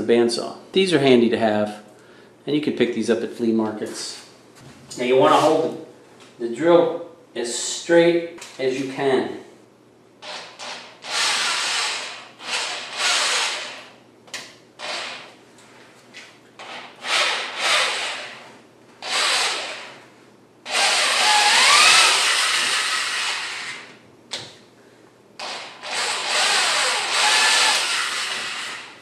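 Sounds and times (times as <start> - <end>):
hand drill boring into wood: 10.2 - 13.9, 14.8 - 15.3, 16.6 - 18.4, 19.0 - 20.0, 20.7 - 23.9, 25.4 - 29.0.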